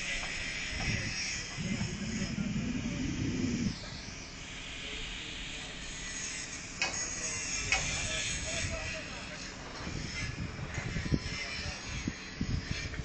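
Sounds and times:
wind buffeting microphone: 0:00.0 - 0:04.4, 0:07.6 - 0:13.0.

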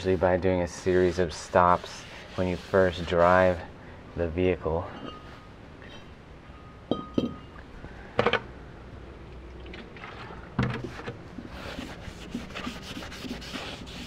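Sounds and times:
paper towel scrubbing metal: 0:00.0 - 0:03.7, 0:11.5 - 0:14.0.

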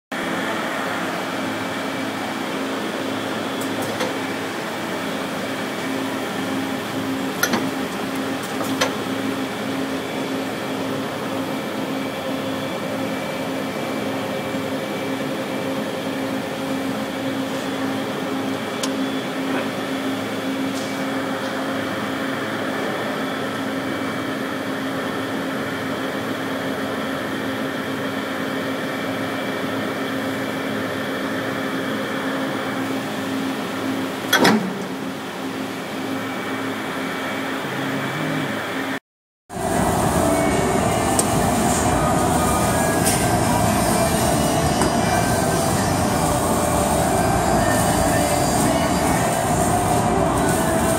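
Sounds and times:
punch press humming: 0:00.2 - 0:11.3, 0:32.8 - 0:38.9, 0:39.5 - 0:50.9.

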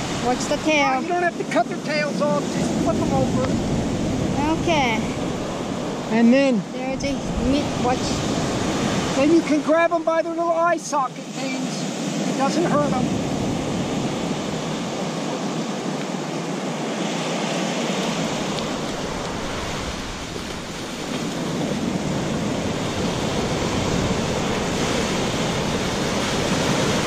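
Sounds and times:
ocean surf breaking: 0:00.0 - 0:27.0.

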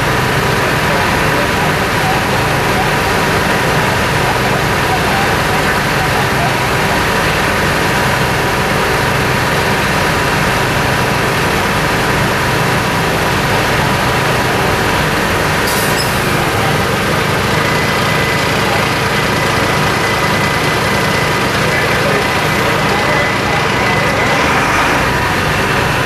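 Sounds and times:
diesel engines running: 0:00.0 - 0:26.0
short high-pitched clatter: 0:15.7 - 0:16.4.

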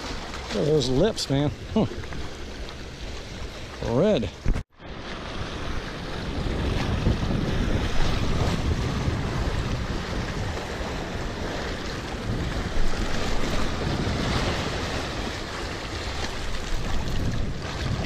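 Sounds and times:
small waves splashing: 0:00.0 - 0:18.0
wind buffeting microphone: 0:04.2 - 0:18.0.

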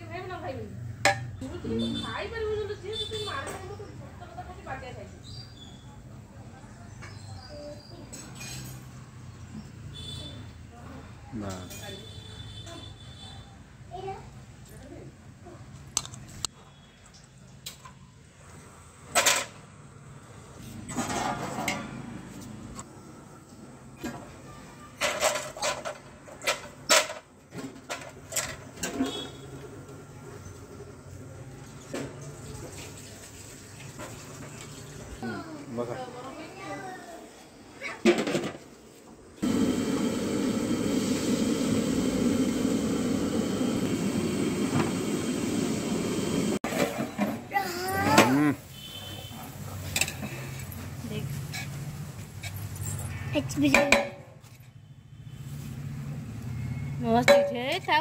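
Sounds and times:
gas burner roaring: 0:39.4 - 0:48.9.

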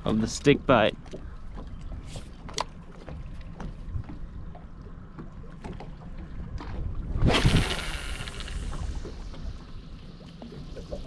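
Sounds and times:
low steady boat rumble: 0:00.0 - 0:11.0.

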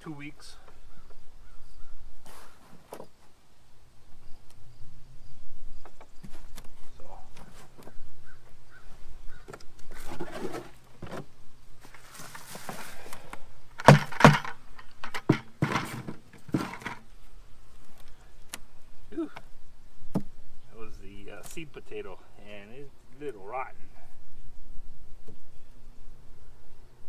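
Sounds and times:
hands rustling through potting soil: 0:09.7 - 0:13.8
plastic buckets knocking: 0:13.8 - 0:17.0.

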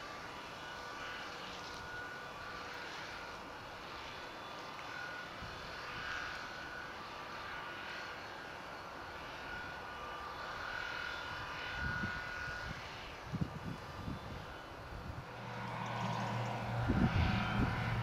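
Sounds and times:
hedge cutter drone with whine: 0:00.0 - 0:18.0
tractor diesel engine running: 0:15.3 - 0:18.0.

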